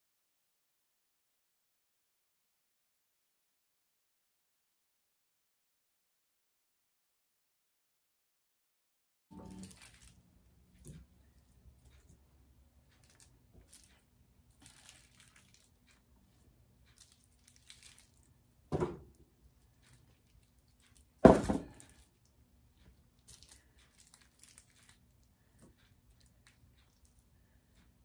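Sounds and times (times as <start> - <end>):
foil crinkling: 9.4 - 10.2, 13.0 - 16.0, 16.9 - 18.4, 23.2 - 25.2
heavy thumps: 21.2 - 21.8.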